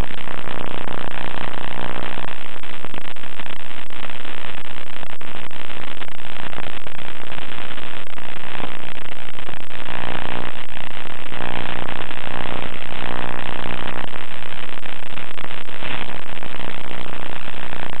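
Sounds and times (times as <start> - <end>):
loud static hiss: 0.0 - 18.0.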